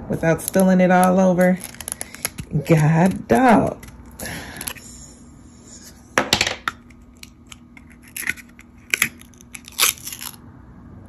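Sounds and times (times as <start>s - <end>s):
paper seal ripping: 1.5s - 2.8s, 7.9s - 10.4s.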